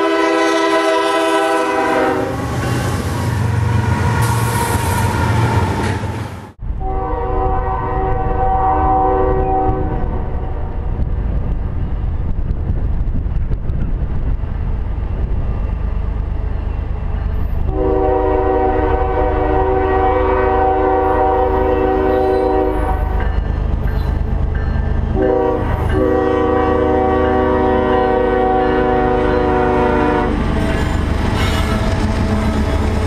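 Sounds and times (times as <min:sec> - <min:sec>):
locomotive air horn blasts: 0:00.0 - 0:02.6, 0:06.8 - 0:10.7, 0:17.7 - 0:23.2, 0:25.2 - 0:30.9
low train rumble: 0:00.0 - 0:33.0.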